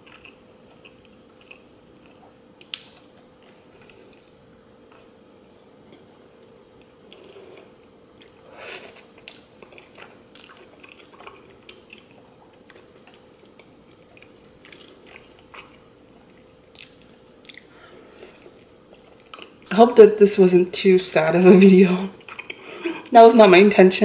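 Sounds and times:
slurping and chewing noodles: 0.0 - 5.2, 5.9 - 19.7.

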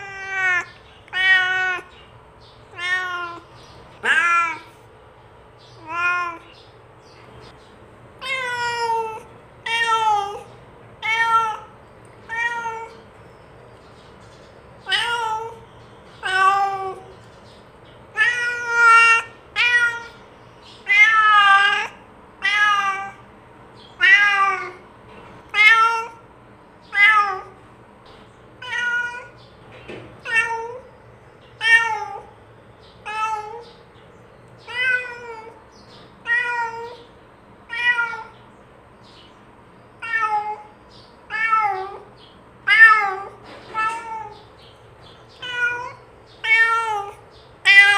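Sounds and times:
cat meowing: 0.0 - 1.9, 2.7 - 4.8, 5.8 - 6.6, 8.2 - 13.1, 14.8 - 15.6, 16.2 - 17.1, 18.1 - 20.2, 20.8 - 23.2, 24.0 - 24.8, 25.5 - 26.2, 26.8 - 27.6, 28.6 - 29.4, 30.2 - 30.9, 31.6 - 32.3, 33.0 - 33.8, 34.6 - 35.6, 36.2 - 37.1, 37.7 - 38.4, 40.0 - 40.7, 41.3 - 44.6, 45.3 - 47.9.

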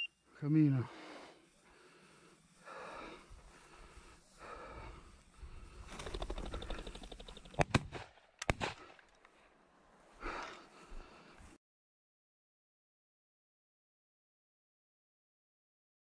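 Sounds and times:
rustling through dry grass: 1.0 - 8.8.

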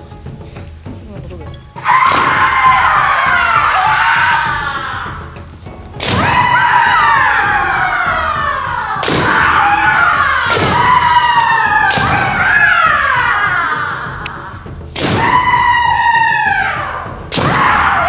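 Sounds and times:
long falling shout: 1.8 - 5.3, 6.2 - 14.6
sharp strike and stamp impacts: 2.0 - 3.7, 5.9 - 7.5, 9.0 - 13.0, 14.2 - 15.6, 17.3 - 18.0.

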